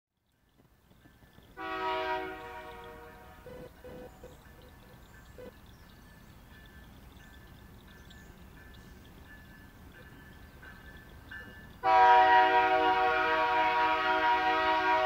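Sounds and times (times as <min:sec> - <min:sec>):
locomotive air horn: 0:01.6 - 0:04.2, 0:11.8 - 0:15.0.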